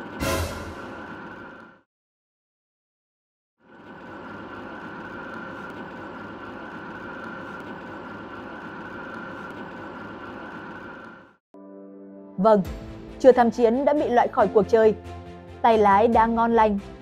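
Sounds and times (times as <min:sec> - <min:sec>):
constant high whine: 0:00.0 - 0:01.8, 0:03.6 - 0:11.4.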